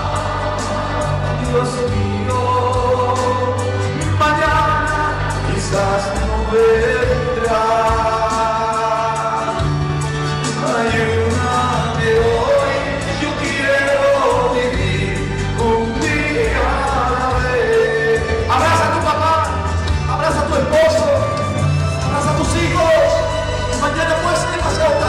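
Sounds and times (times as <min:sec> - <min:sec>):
voices singing slow melody: 0:00.0 - 0:03.8
music with bass and beat: 0:00.0 - 0:25.0.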